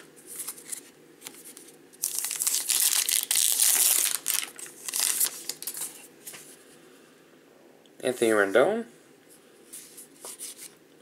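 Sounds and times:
card pack wrapper tearing: 2.0 - 5.9.

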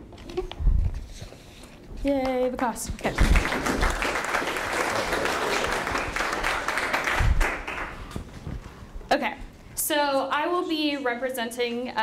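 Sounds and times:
audience applauding: 3.1 - 8.2.

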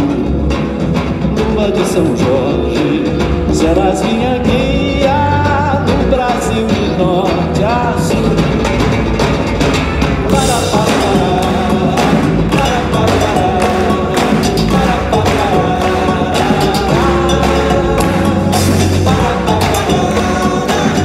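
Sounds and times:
person singing: 0.0 - 9.0, 10.3 - 21.0
live band music: 0.0 - 21.0
hand clapping: 10.3 - 21.0.

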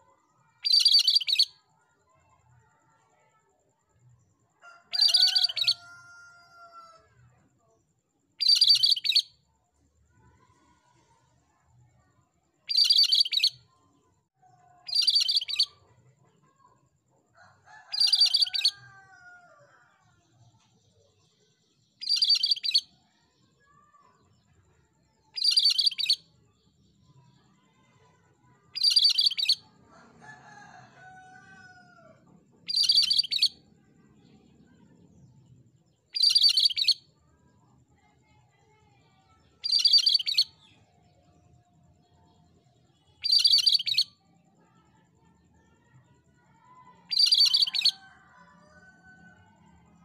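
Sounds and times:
bird calling high-pitched phrase: 0.6 - 1.6, 5.0 - 5.8, 8.4 - 9.2, 12.7 - 13.5, 14.9 - 15.7, 25.4 - 26.2, 32.7 - 33.6, 36.1 - 37.0, 39.6 - 40.6, 43.2 - 44.1, 47.1 - 48.0.

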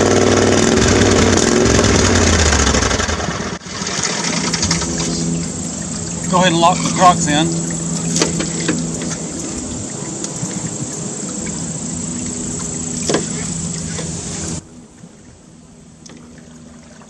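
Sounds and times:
small gasoline engine idling: 0.0 - 3.6.

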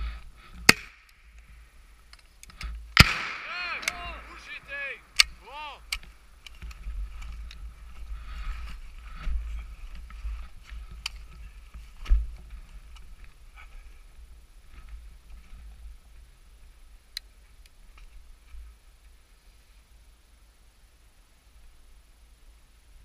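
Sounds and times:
sharp cracks: 0.6 - 1.5, 2.1 - 6.7.

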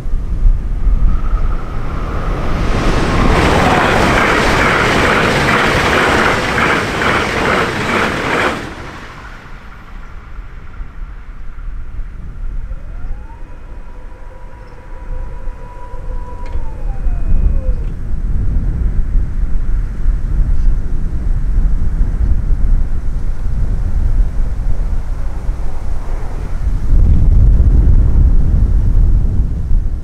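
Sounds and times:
vehicle rumble: 0.0 - 29.7
faint rising tone: 0.3 - 6.8, 9.2 - 18.1
road vehicle passing: 0.5 - 17.9, 23.1 - 28.1.

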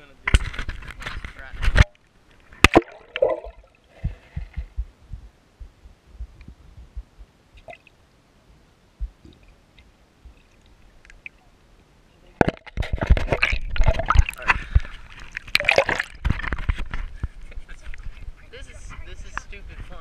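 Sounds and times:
water splashing and sloshing: 0.3 - 4.9, 9.0 - 11.7, 12.3 - 20.0
muffled underwater knocks: 2.6 - 7.7
faint clicks: 9.2 - 11.4.

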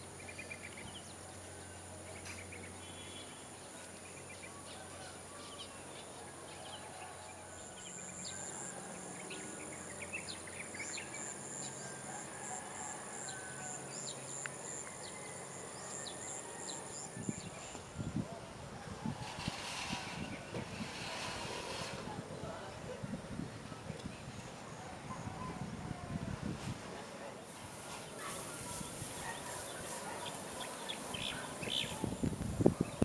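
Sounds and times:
bird chirps and calls: 28.7 - 32.1.

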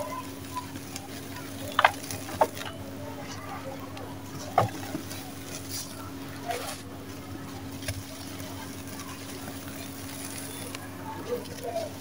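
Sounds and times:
cement chunk crumbling by hand: 1.6 - 2.8.

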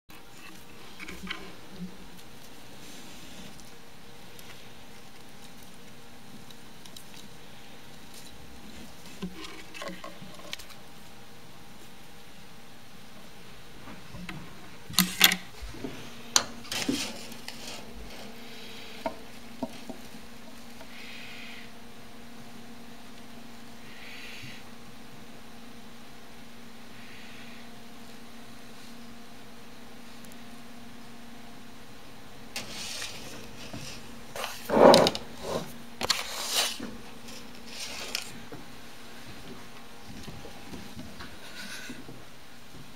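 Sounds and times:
gerbils scrabbling in bedding: 0.1 - 12.3, 13.9 - 24.6, 32.5 - 42.1.

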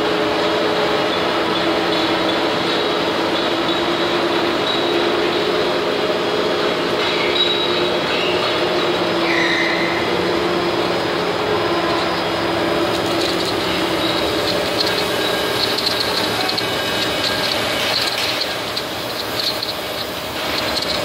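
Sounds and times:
machinery humming: 0.0 - 21.0
high squealing tones: 7.3 - 21.0.

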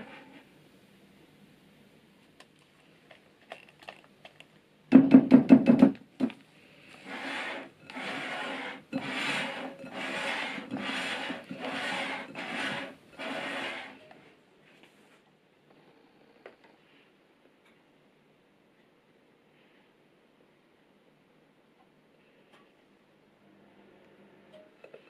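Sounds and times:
knocks and scrapes: 7.0 - 14.0
spatula scraping glass bowl: 7.0 - 14.1.

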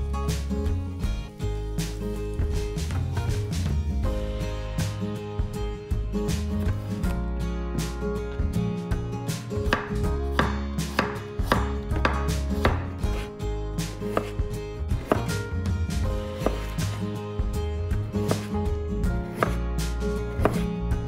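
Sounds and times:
background music: 0.0 - 21.0
knife chopping on wooden board: 9.7 - 15.4, 16.4 - 17.0, 18.2 - 18.6, 19.2 - 19.7, 20.3 - 20.7.

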